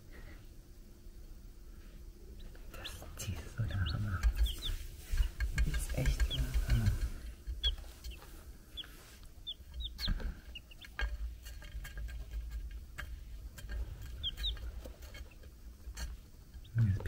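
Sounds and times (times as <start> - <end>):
chicks peeping: 2.1 - 17.0
chick pecking taps on plate: 3.4 - 17.0.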